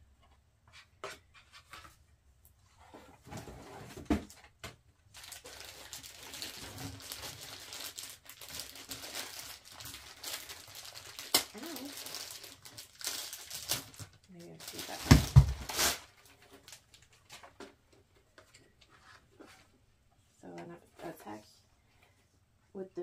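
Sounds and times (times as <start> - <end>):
plastic wrapping crinkling: 5.1 - 17.6.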